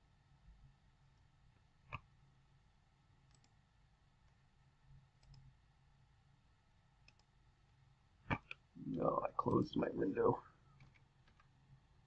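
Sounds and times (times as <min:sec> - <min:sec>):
computer mouse clicks: 0:03.3 - 0:03.6, 0:05.2 - 0:05.5, 0:07.0 - 0:07.3, 0:10.8 - 0:11.6.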